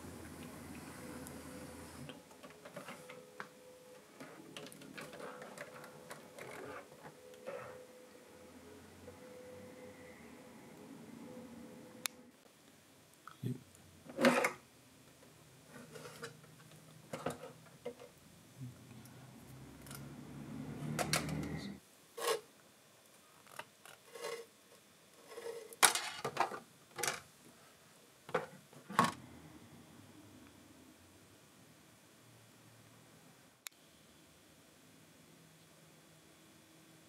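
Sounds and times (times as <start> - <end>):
low steady hum: 0.0 - 22.0
plastic items clicking and knocking: 4.5 - 6.8, 25.8 - 27.3.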